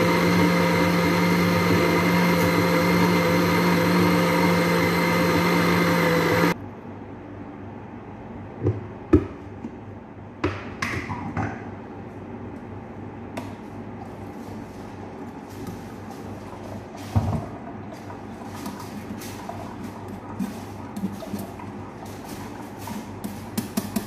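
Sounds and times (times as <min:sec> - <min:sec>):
blender motor running: 0:00.0 - 0:06.6.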